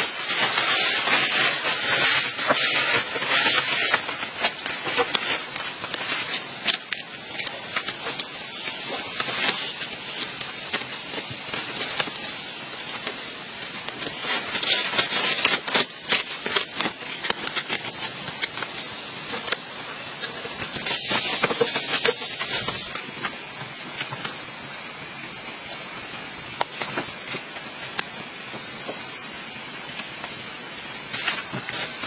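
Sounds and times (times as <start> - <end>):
steady hiss: 0.0 - 32.0
vine rustling and crackling: 0.0 - 32.0.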